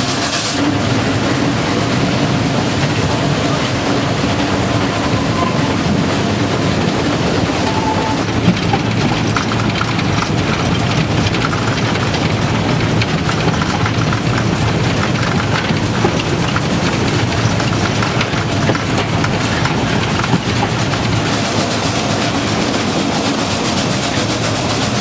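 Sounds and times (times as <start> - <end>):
steam locomotive running: 0.0 - 25.0
small clicks and rattles: 8.2 - 21.4.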